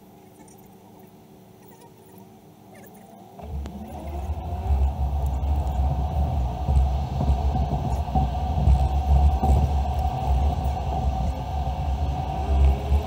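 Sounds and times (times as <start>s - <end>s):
car road and engine rumble: 3.0s - 13.0s.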